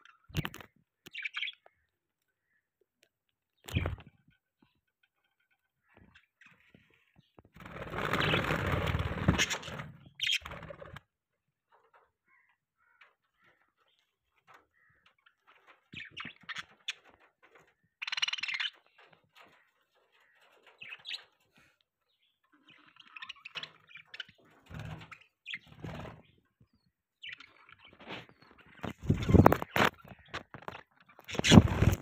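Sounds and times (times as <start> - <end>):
budgerigars chirping: 22.6 - 26.0.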